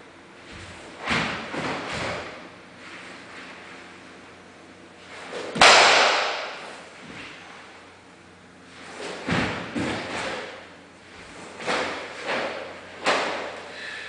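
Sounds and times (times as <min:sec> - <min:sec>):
sharp crack ringing in a hall: 0:05.5 - 0:06.8
uniform swishes and snaps: 0:08.7 - 0:10.6, 0:11.2 - 0:13.6.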